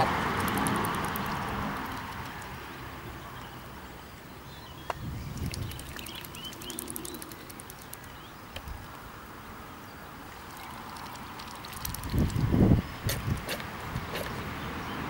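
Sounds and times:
goose bills clicking: 0:00.0 - 0:02.7, 0:05.3 - 0:08.7, 0:10.4 - 0:12.5
small birds chirping: 0:00.0 - 0:15.0.

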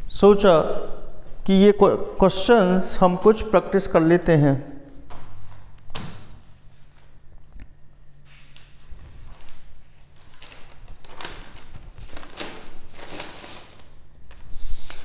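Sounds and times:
steady low hum: 0:00.0 - 0:15.0
rustling handling noises: 0:08.3 - 0:14.4.

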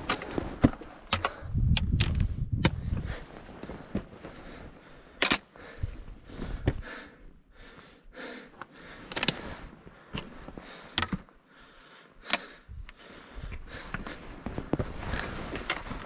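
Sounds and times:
trekking pole tips tapping on rock: 0:00.0 - 0:03.1.

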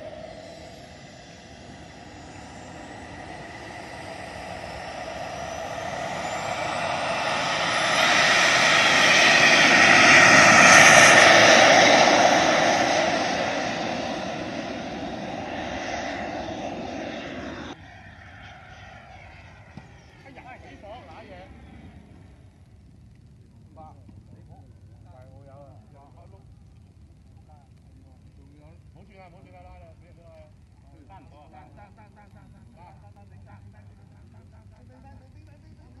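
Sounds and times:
jet rush passing: 0:00.0 - 0:17.8
model jet engine whine: 0:00.0 - 0:36.0.

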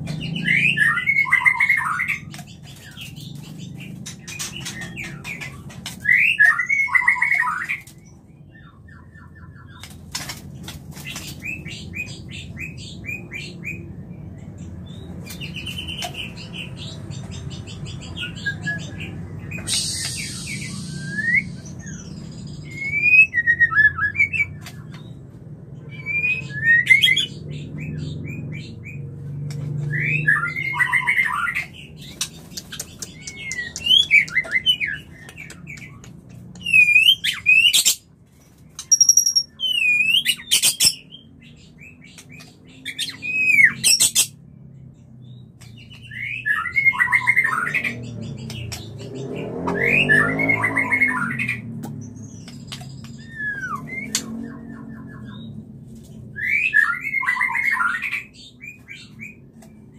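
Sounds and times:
bird singing whistled phrases: 0:19.6 - 0:22.0, 0:22.6 - 0:24.5, 0:36.6 - 0:37.9, 0:53.1 - 0:55.5, 0:56.3 - 0:58.3.

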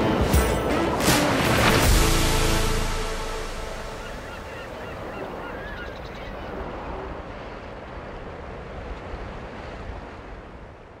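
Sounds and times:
sea water rushing: 0:00.0 - 0:11.0
wind: 0:00.0 - 0:11.0
bird calls: 0:03.9 - 0:06.7.

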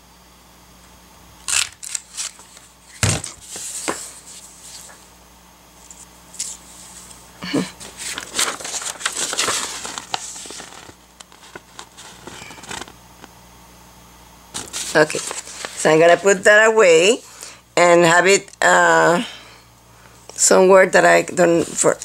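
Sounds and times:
paper rustling and crinkling: 0:01.5 - 0:05.0, 0:05.8 - 0:07.2, 0:07.8 - 0:13.0, 0:14.5 - 0:16.4.

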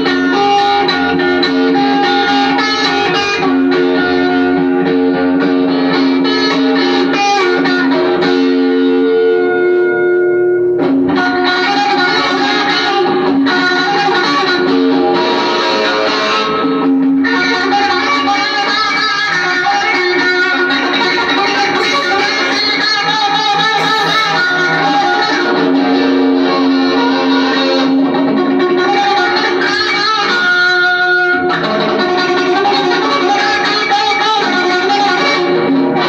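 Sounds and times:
electric guitar ringing notes: 0:21.7 - 0:26.8.

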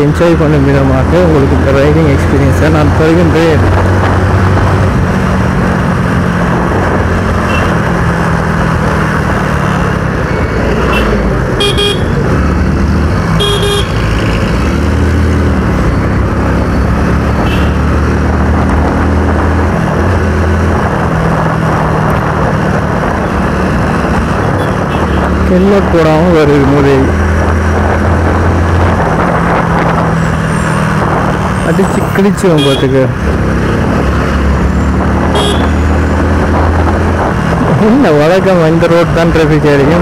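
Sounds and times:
wind and road noise: 0:00.0 - 0:40.0
motorcycle engine running: 0:03.4 - 0:21.3, 0:34.7 - 0:38.4
vehicle horn beeping: 0:07.5 - 0:07.8, 0:10.9 - 0:12.2, 0:13.4 - 0:14.0, 0:17.4 - 0:17.8, 0:32.6 - 0:33.0, 0:35.3 - 0:35.8.

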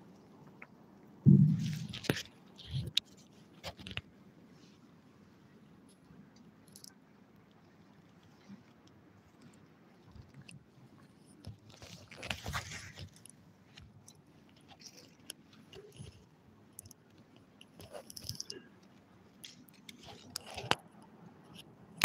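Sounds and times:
handling noises at a table: 0:01.3 - 0:04.8, 0:10.0 - 0:22.0.

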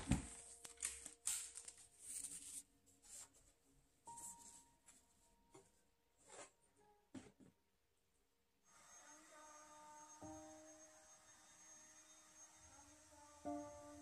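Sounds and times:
plastic packaging crinkling: 0:00.0 - 0:02.6
faint background music: 0:09.1 - 0:14.0.

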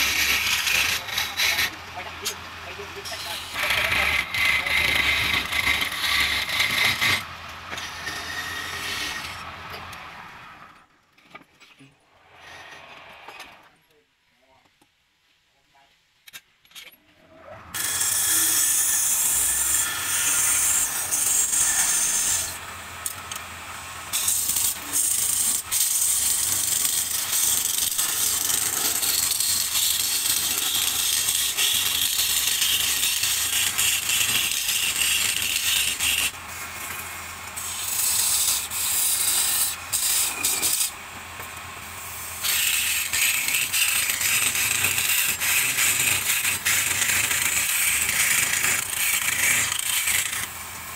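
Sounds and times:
gouge scraping wood on lathe: 0:00.0 - 0:02.4, 0:03.0 - 0:09.4, 0:17.8 - 0:22.6, 0:24.1 - 0:50.5.

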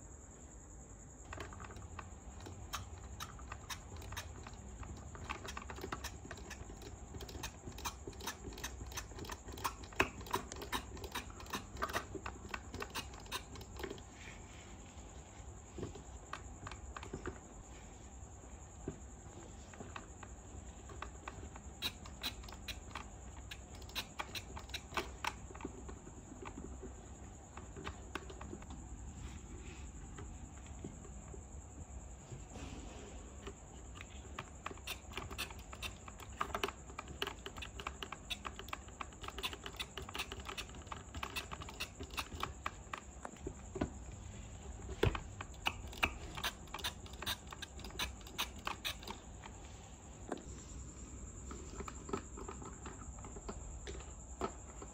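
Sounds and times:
plastic toy pieces clicking: 0:01.3 - 0:14.0, 0:34.6 - 0:42.7.

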